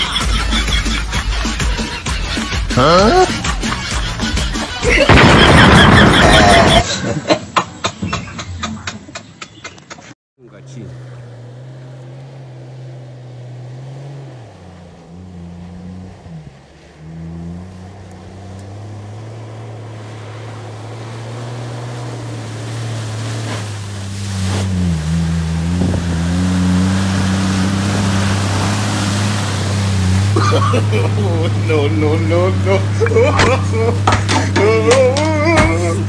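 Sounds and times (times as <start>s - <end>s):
pickup truck engine running: 10.4s - 36.0s
water splashing under truck: 10.6s - 36.0s.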